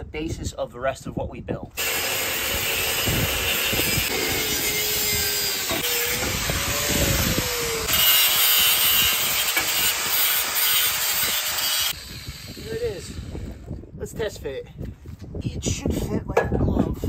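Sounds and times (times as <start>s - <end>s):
angle grinder cutting steel: 1.8s - 13.6s.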